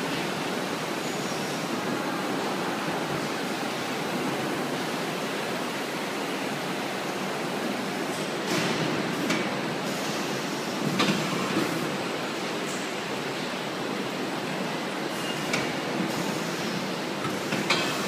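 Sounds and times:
palletizer and roller conveyor running: 7.1s - 18.0s.

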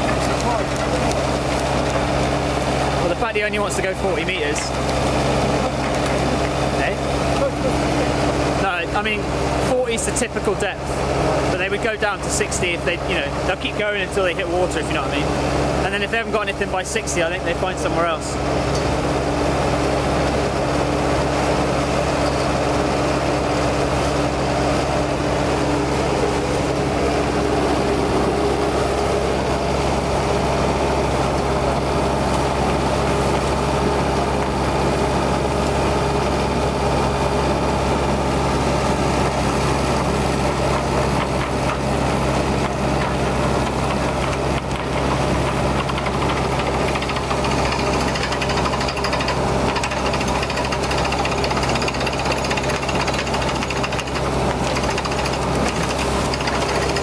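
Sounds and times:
drilling rig engine drone: 0.0s - 57.0s
higher hum: 20.7s - 40.0s.

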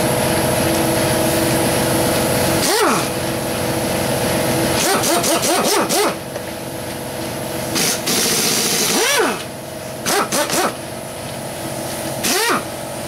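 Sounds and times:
pneumatic impact wrench whine: 2.5s - 3.3s, 4.6s - 6.4s, 7.7s - 10.9s, 12.1s - 13.0s.

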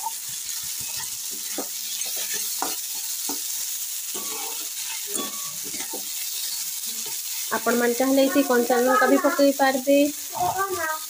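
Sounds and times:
vegetables sizzling in oil: 0.0s - 11.0s
metal spatula scraping pan: 0.8s - 3.5s, 4.1s - 7.5s.

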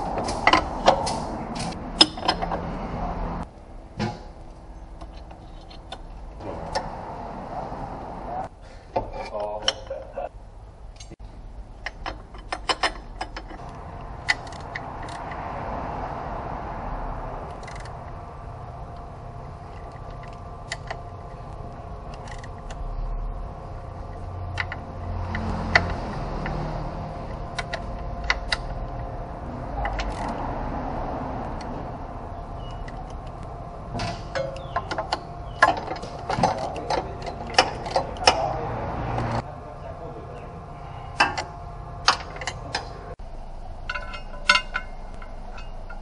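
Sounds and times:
workshop hum: 0.0s - 46.0s
ratchet clicking: 17.5s - 18.0s, 22.1s - 22.9s, 24.2s - 28.9s, 29.8s - 30.4s.

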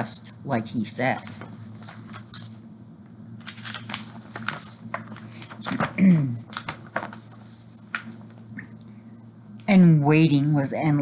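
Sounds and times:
book pages turning: 1.2s - 2.6s, 3.4s - 8.4s
rustling and knocks of book: 3.4s - 8.4s.

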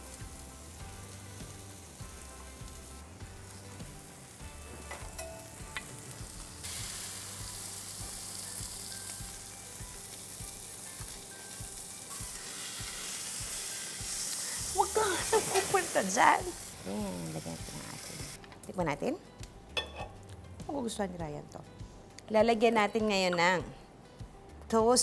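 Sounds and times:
steak sizzling on grill pan: 0.0s - 18.4s.

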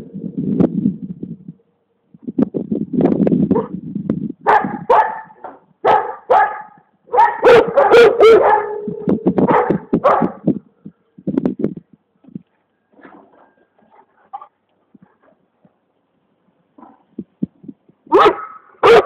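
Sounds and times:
dog barking: 4.4s - 8.9s, 9.5s - 10.4s, 18.1s - 19.0s.

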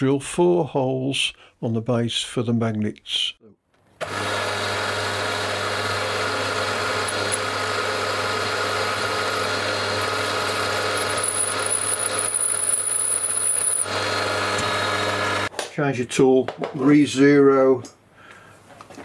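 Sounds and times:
drill cutting into aluminium: 4.0s - 15.5s
milling machine spindle running: 4.0s - 15.5s.

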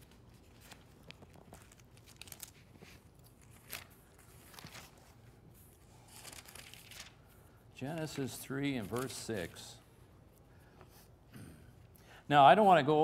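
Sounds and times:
thin pages rustling: 0.0s - 9.6s.

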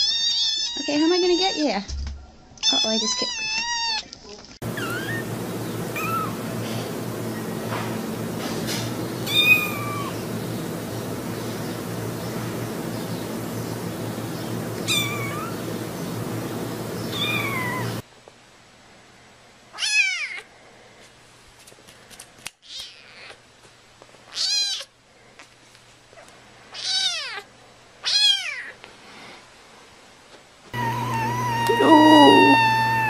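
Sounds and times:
kitten meowing: 4.8s - 5.3s, 6.0s - 6.4s, 9.3s - 10.2s, 14.8s - 15.6s, 17.1s - 17.9s, 30.8s - 33.0s.

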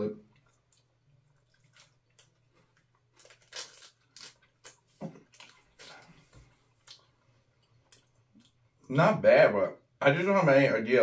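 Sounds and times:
wrapper crinkling and tearing: 3.1s - 6.1s.

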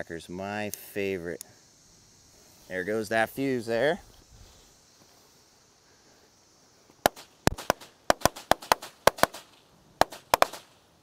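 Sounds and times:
firecrackers banging: 7.0s - 10.7s.

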